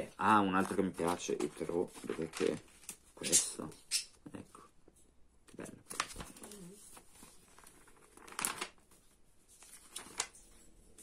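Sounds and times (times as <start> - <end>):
magazine pages rustling: 0.3 - 3.4, 5.8 - 11.0.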